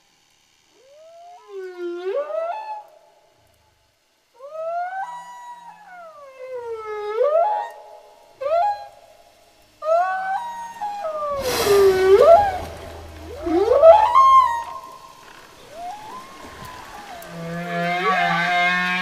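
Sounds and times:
eerie gliding pitched calls: 9.8s - 19.0s.

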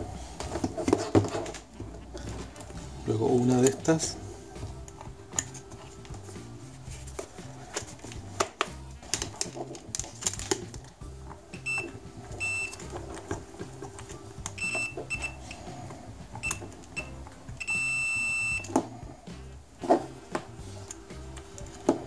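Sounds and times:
background music: 0.0s - 22.0s
multimeter continuity beeps: 11.6s - 12.9s, 14.5s - 15.6s, 16.4s - 18.8s.

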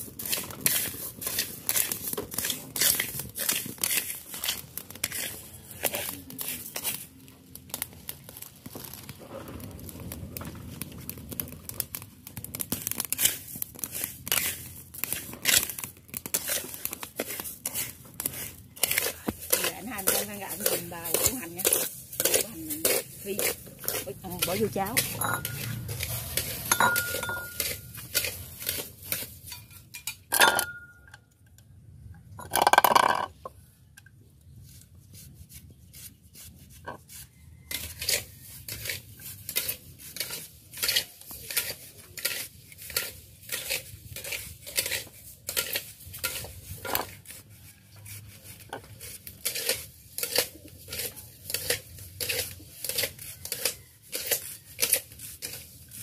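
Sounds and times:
utensil scraping in a pan: 0.0s - 31.0s, 34.5s - 56.0s
cookware clanking: 23.9s - 27.8s, 29.5s - 31.1s
cookware clattering: 24.4s - 25.8s, 26.7s - 27.8s, 29.5s - 31.0s.

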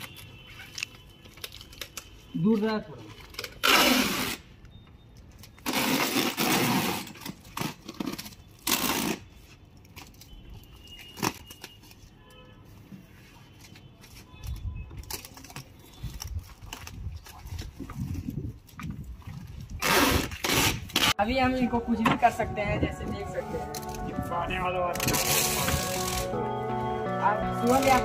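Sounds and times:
packing tape screeching rips: 0.0s - 2.3s, 3.2s - 4.6s, 5.4s - 12.1s, 14.5s - 17.0s, 19.8s - 21.2s, 25.0s - 26.3s
tape rustling and clicking: 0.0s - 3.9s, 5.1s - 19.0s.

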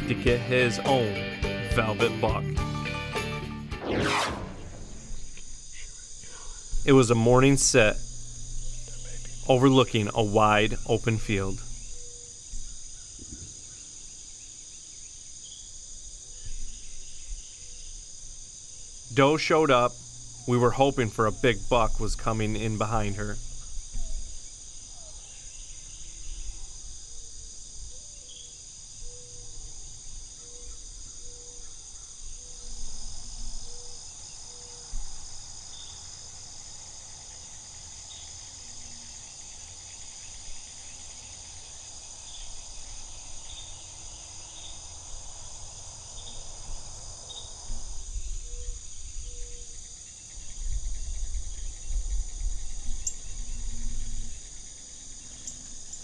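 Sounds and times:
low rumble: 3.7s - 5.6s
insects chirping chorus: 4.3s - 56.0s.

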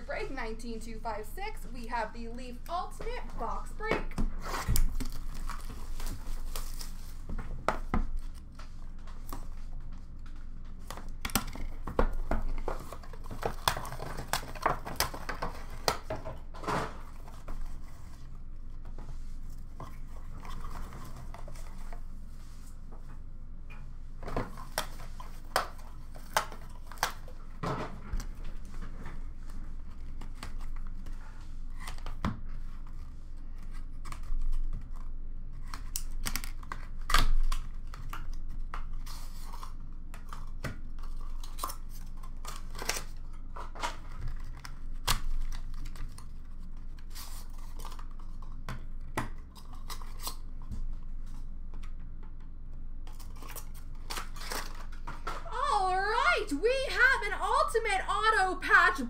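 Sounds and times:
wrapping tearing and crinkling: 4.4s - 7.3s, 10.8s - 16.1s, 24.5s - 27.6s, 29.5s - 51.4s, 53.0s - 56.2s.

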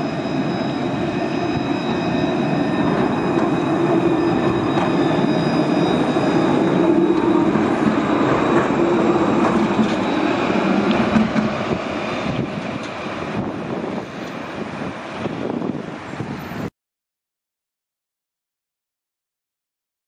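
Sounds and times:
electric tram rumble and motor hum: 0.0s - 16.7s.

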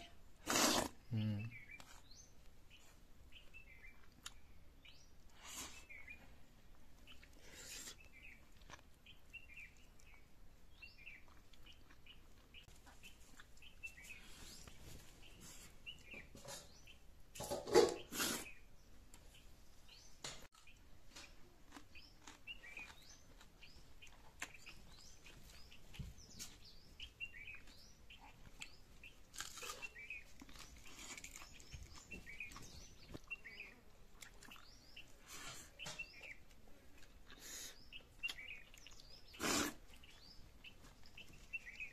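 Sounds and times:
small birds chirping: 0.0s - 41.9s
chewing: 2.8s - 4.6s, 5.3s - 14.8s, 20.5s - 41.9s.

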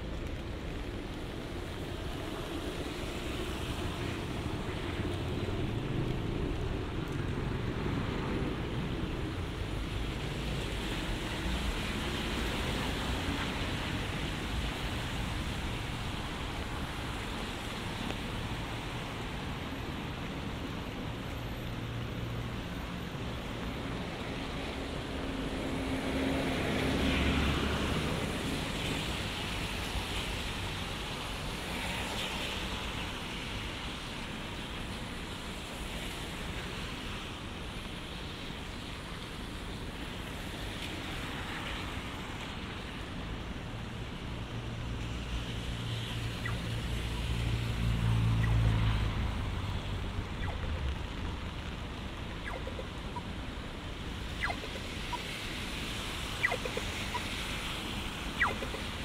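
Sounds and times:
tyres hissing on wet road: 0.0s - 59.0s.

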